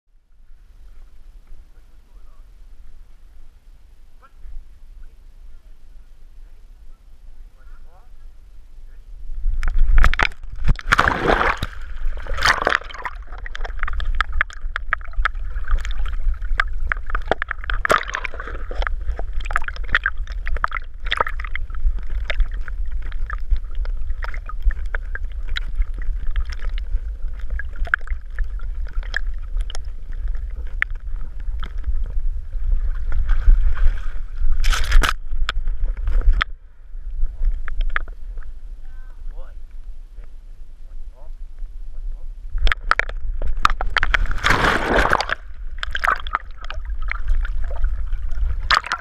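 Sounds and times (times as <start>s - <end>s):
low rumble of water: 0.1s - 49.0s
water splashing and gurgling: 9.4s - 38.8s, 42.5s - 49.0s
dog splashing into water: 10.7s - 14.1s, 44.1s - 46.4s.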